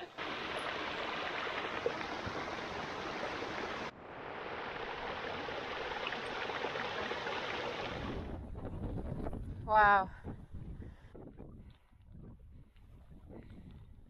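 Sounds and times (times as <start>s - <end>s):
brook splashing over boulders: 0.0s - 8.4s.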